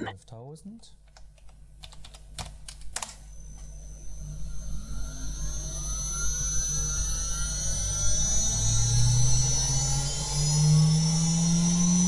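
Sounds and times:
computer keystrokes: 0:01.1 - 0:03.2
spindle motor whine rising in pitch: 0:03.2 - 0:12.0.

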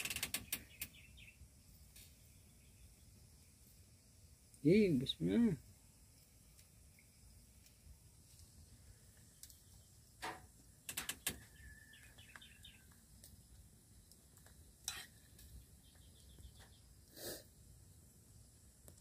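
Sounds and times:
bird chirping: 0:00.0 - 0:01.4, 0:10.8 - 0:13.0, 0:15.5 - 0:17.0.

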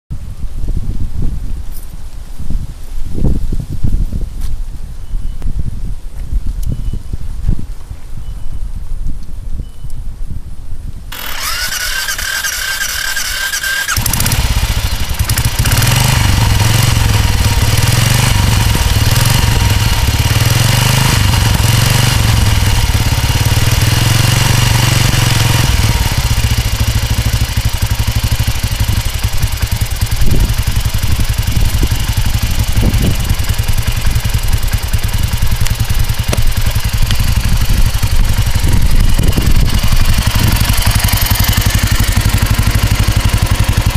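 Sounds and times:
motorcycle engine running: 0:11.1 - 0:43.9
motorcycle starter whining: 0:11.1 - 0:43.9.

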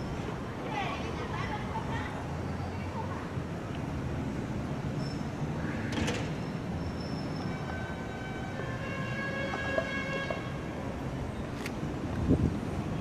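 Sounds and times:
distant traffic: 0:00.0 - 0:13.0
wind on microphone: 0:12.0 - 0:13.0.

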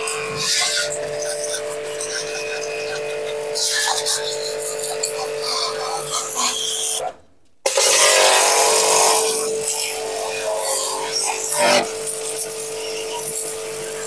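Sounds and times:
electric pressure washer humming: 0:00.0 - 0:07.0, 0:07.7 - 0:14.0
water jet hissing on metal: 0:00.0 - 0:07.0, 0:07.7 - 0:14.0.

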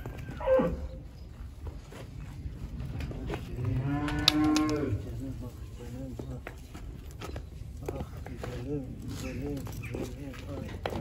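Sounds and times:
calves mooing: 0:03.6 - 0:05.0.

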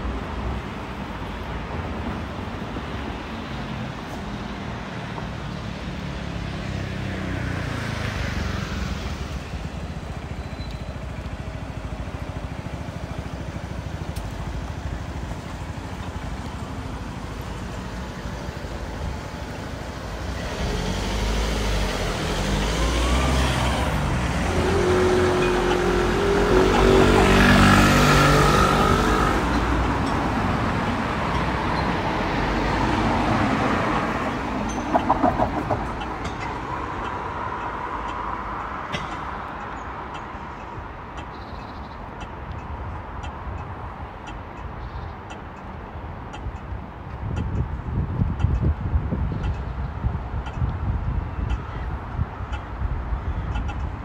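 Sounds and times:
cars driving past: 0:00.0 - 0:54.0
vehicle accelerating past: 0:20.2 - 0:29.8.

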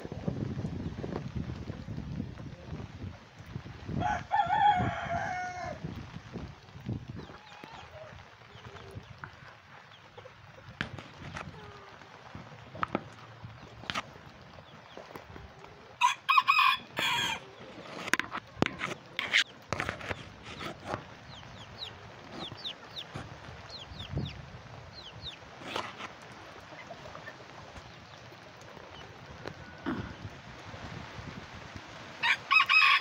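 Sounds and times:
rooster crowing: 0:04.0 - 0:05.8, 0:16.0 - 0:17.5, 0:32.2 - 0:33.0
chickens clucking: 0:07.1 - 0:16.0, 0:17.0 - 0:31.0.

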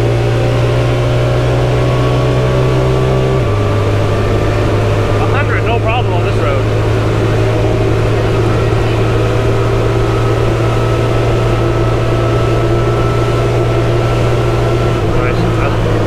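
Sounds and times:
engine droning steadily: 0:00.0 - 0:16.0.

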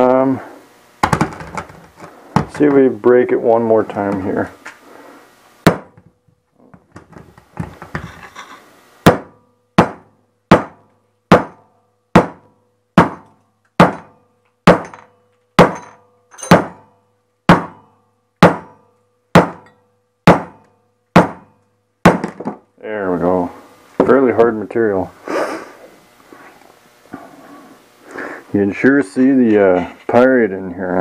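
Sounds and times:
hammer striking rock: 0:05.7 - 0:06.0, 0:09.1 - 0:11.6, 0:12.2 - 0:16.9, 0:17.5 - 0:19.7, 0:20.3 - 0:22.6.

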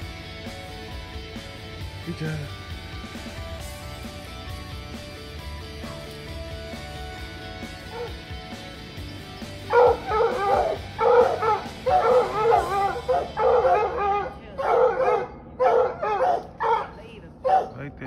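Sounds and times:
background music: 0:00.0 - 0:16.5
hounds baying and barking: 0:05.8 - 0:17.8.

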